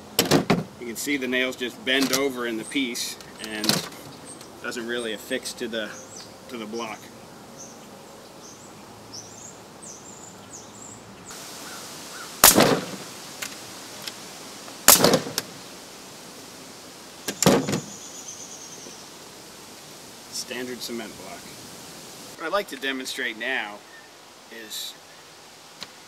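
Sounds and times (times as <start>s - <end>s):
pneumatic nailer shots: 0.2s - 0.7s, 12.4s - 13.5s, 14.8s - 15.5s, 17.3s - 17.9s.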